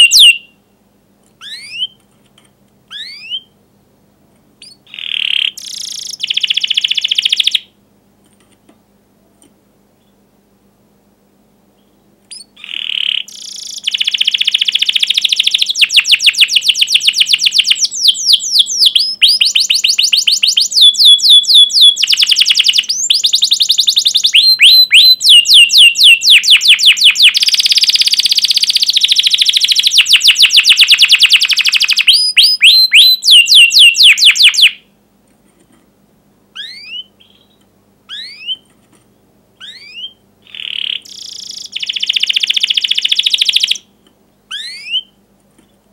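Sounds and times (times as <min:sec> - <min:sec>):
canary singing rolling trills: 0:00.0 - 0:00.6, 0:01.4 - 0:02.0, 0:02.9 - 0:03.6, 0:04.6 - 0:07.8, 0:11.7 - 0:34.9, 0:36.5 - 0:38.7, 0:39.6 - 0:45.2
sharp bird chirps: 0:00.0 - 0:00.6, 0:01.4 - 0:02.0, 0:02.9 - 0:03.6, 0:04.6 - 0:07.7, 0:11.8 - 0:34.8, 0:36.6 - 0:38.7, 0:39.6 - 0:43.9, 0:44.5 - 0:45.2.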